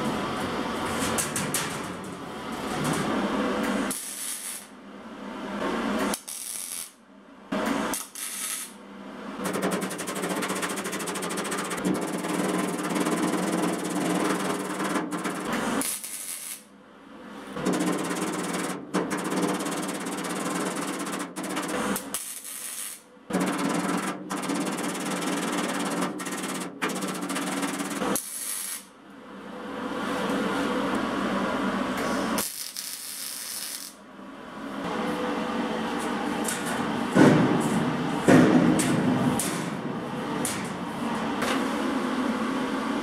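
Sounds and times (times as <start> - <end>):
hammer beating sheet steel: 9.4 - 16.2, 17.6 - 22.4, 23.3 - 28.2, 36.7 - 40.8.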